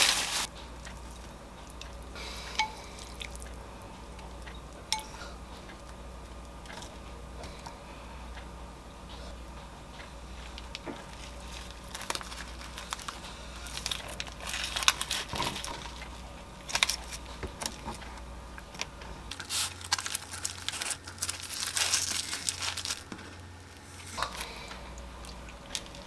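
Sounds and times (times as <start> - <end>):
dry seaweed sheets crackling: 0.0 - 3.6, 10.4 - 18.0, 18.7 - 26.0.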